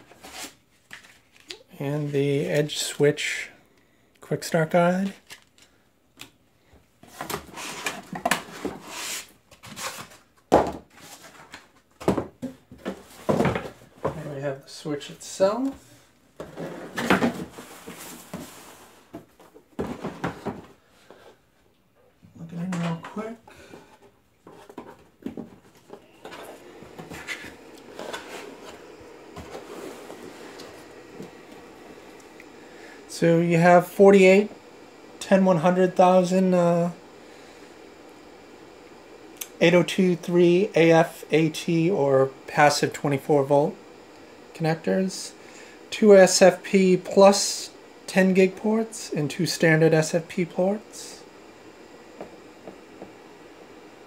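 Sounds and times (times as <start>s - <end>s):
cooling fans whirring: 12.8s - 54.0s.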